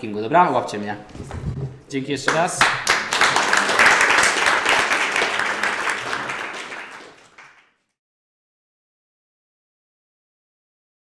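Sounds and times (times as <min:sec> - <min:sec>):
audience applauding: 0:02.3 - 0:07.8.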